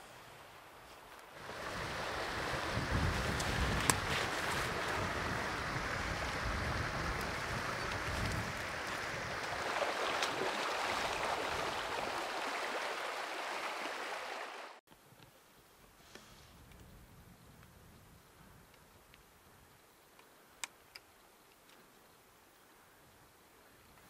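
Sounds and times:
creek running over rocks: 0.3s - 14.8s
wind on microphone: 1.4s - 9.8s.

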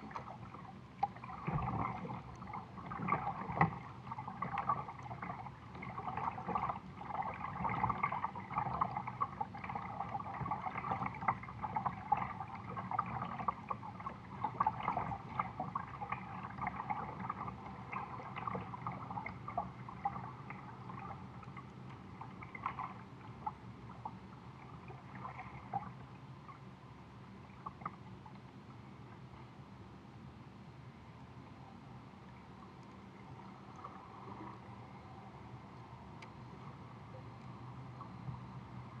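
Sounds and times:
small water splashes: 0.0s - 26.7s
water lapping against plastic hull: 0.0s - 26.7s, 27.3s - 29.5s.

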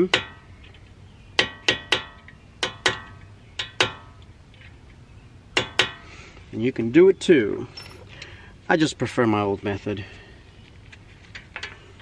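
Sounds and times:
hammer tapping metal punch: 0.0s - 0.4s, 1.4s - 4.2s, 5.6s - 6.1s.

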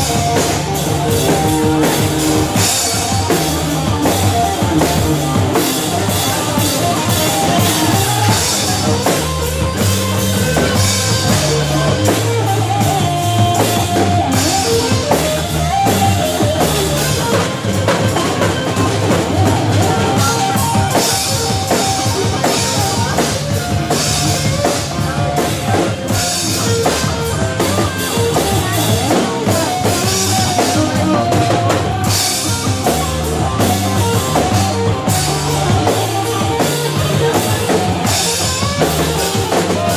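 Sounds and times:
bass guitar line: 0.0s - 39.9s
drum kit beat with cymbals: 0.0s - 39.9s
electric guitar: 0.0s - 39.9s.

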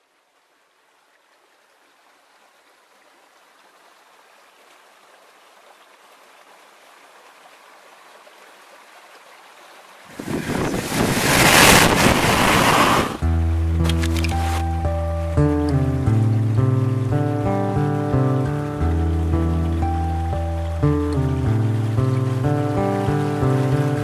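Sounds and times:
rushing water: 0.0s - 24.0s.

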